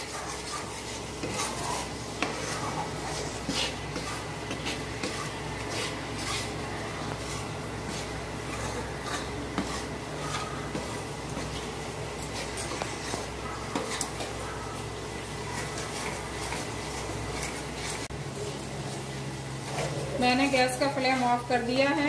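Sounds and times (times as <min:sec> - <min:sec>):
spatula scraping metal pan: 0:00.0 - 0:14.4, 0:15.4 - 0:18.1.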